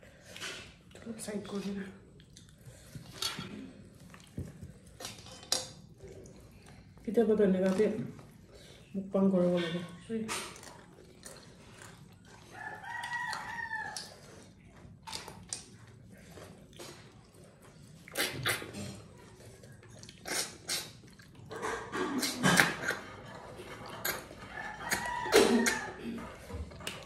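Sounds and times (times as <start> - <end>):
people slurping and smacking: 0.0 - 27.0
rooster crowing: 12.5 - 14.1, 24.5 - 26.2.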